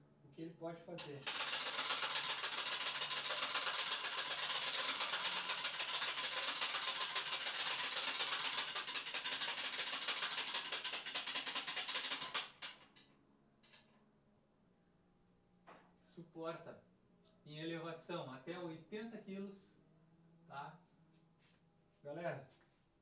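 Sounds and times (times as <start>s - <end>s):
hand-crank winch clicking: 1.0s - 13.0s.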